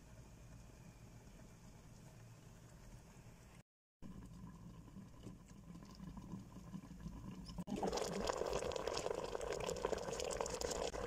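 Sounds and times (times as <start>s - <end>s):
curry bubbling and crackling in pot: 4.0s - 11.0s.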